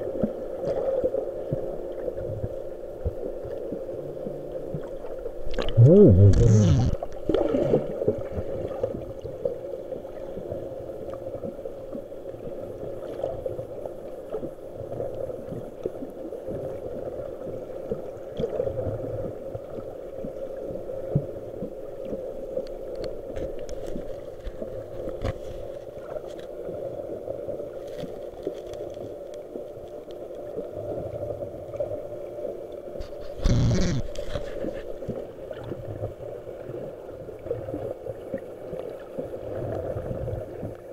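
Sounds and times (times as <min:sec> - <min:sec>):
underwater hum: 0:00.0 - 0:40.9
gurgling rush of bubbles: 0:04.8 - 0:09.4
faint clicks and crackles: 0:17.8 - 0:36.2.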